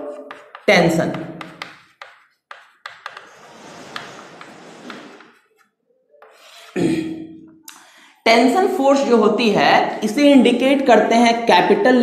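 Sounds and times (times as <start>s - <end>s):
chalk tapping on chalkboard: 0.0s - 6.7s
chalk scratching on chalkboard: 0.0s - 6.8s.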